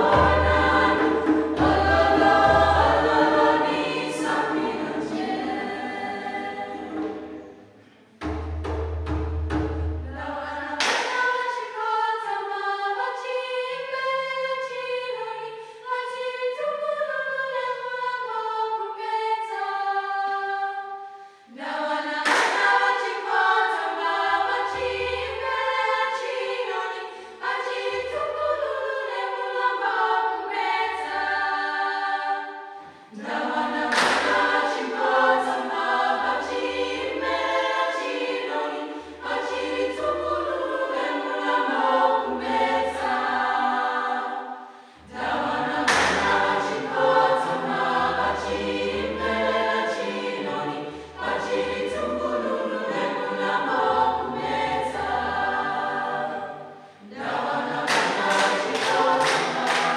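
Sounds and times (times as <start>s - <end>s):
low hand drum beats: 0.0s - 3.1s
youth choir singing: 0.0s - 7.8s, 10.0s - 59.9s.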